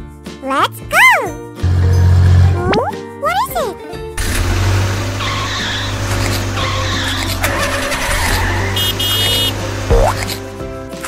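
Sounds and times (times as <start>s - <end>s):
light background music: 0.0s - 11.0s
tires skidding: 4.2s - 10.5s
engine rumble: 4.2s - 10.6s.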